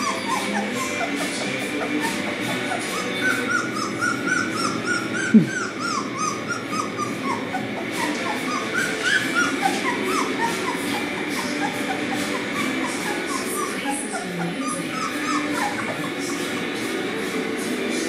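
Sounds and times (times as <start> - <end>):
puppy low falling cry: 0.0 - 13.8
puppies whimpering: 0.0 - 18.0.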